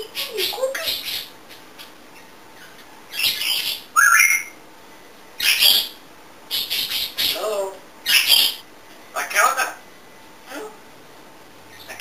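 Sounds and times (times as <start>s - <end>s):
parrot squawking: 0.0s - 4.6s, 5.4s - 8.6s
parrot warbling call: 3.1s - 4.6s, 5.4s - 8.6s
parrot whistle: 3.1s - 4.6s.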